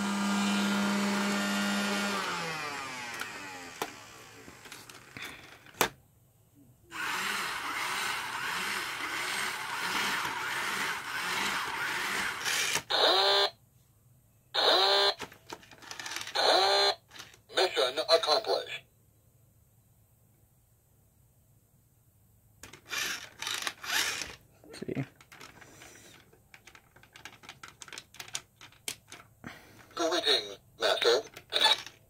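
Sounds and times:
toy motor and gears whirring: 0.0 - 5.8, 6.9 - 13.5, 14.6 - 17.4, 22.6 - 24.4, 31.1 - 32.0.

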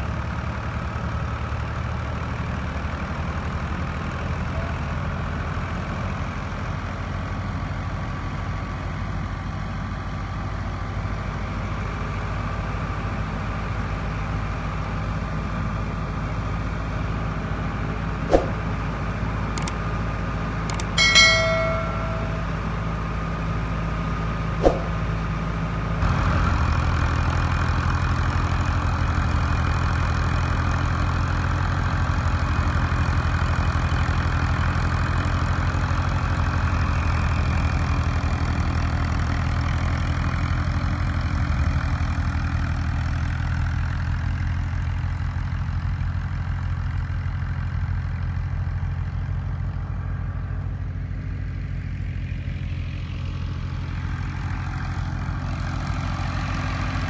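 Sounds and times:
diesel engine running: 0.0 - 57.0
sharp clicks: 19.6 - 19.8, 20.7 - 21.0
short chime: 20.7 - 22.9.

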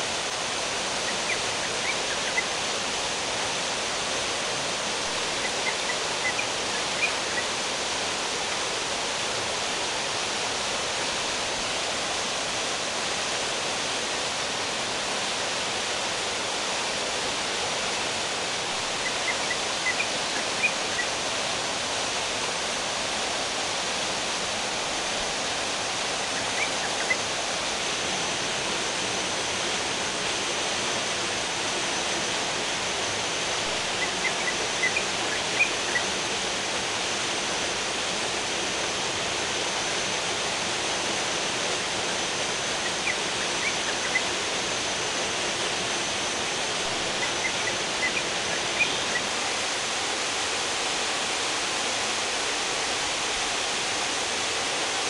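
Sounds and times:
river water rushing over rocks: 0.0 - 55.0.

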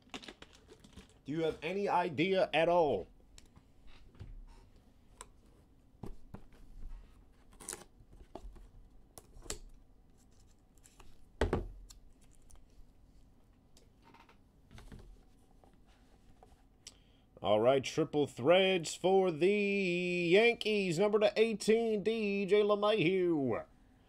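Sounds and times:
cards and wrappers rustling: 0.0 - 1.3.

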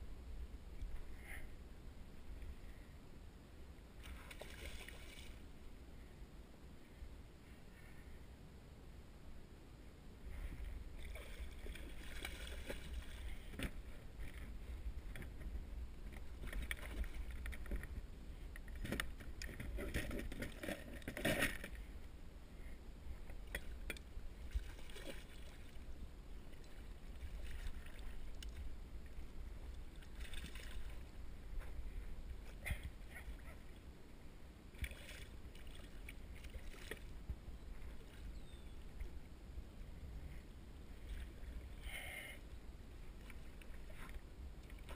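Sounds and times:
steady low rumble: 0.0 - 44.9
fish splashing and thrashing: 4.0 - 5.4, 11.0 - 18.0, 18.6 - 21.8, 24.4 - 25.8, 29.9 - 31.1, 34.8 - 37.1.

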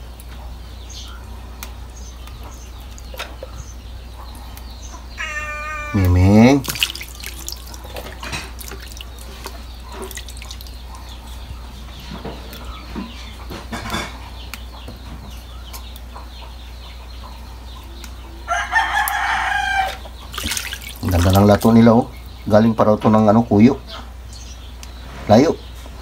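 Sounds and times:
rooster crowing: 5.2 - 6.2, 18.3 - 20.1
water splashing and dripping: 6.0 - 11.2, 19.9 - 22.0.

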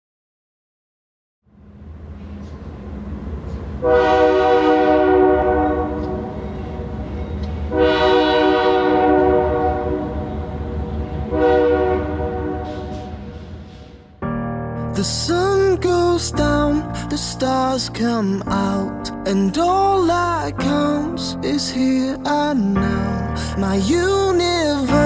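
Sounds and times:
train rumbling: 1.5 - 25.0
train horn blasts: 3.8 - 14.2.

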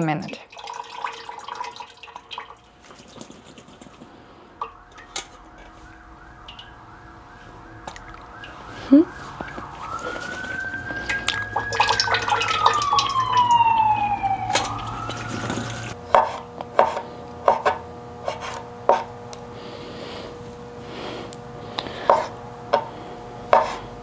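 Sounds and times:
clatter and splashing at a sink: 0.0 - 5.7, 9.4 - 13.6, 14.5 - 16.0
whine rising and falling in pitch: 4.6 - 16.0
knife slicing on a cutting board: 23.5 - 23.8.

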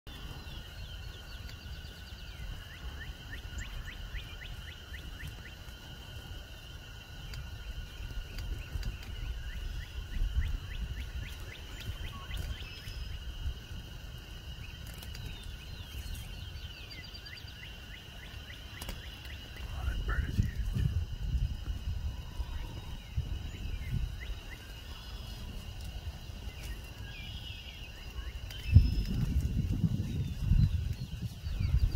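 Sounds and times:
wind rumble on microphone: 0.1 - 31.9
small bird chirping: 7.8 - 13.4, 14.5 - 21.0.

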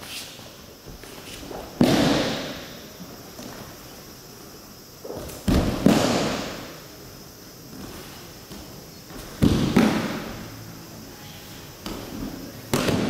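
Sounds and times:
bodies slapping onto mat: 7.7 - 10.3.

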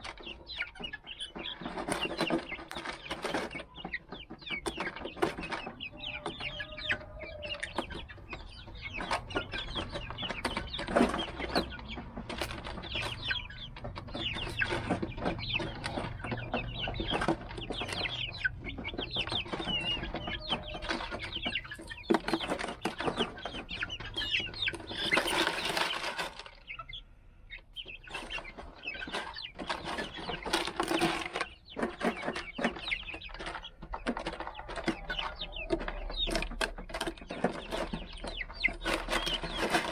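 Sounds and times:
chicks peeping and clucking: 0.0 - 39.9
rustling: 13.9 - 26.8, 27.8 - 35.0.

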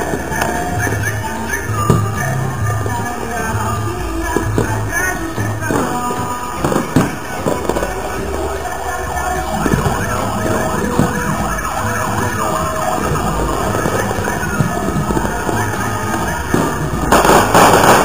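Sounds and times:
fireworks bangs: 0.0 - 18.0
fireworks whistles: 0.0 - 18.0
music with thumping bass: 9.2 - 18.0.

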